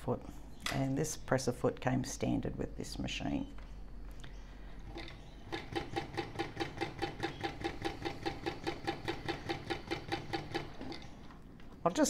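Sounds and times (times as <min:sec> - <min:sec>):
sewing machine stitching: 0:04.9 - 0:11.2.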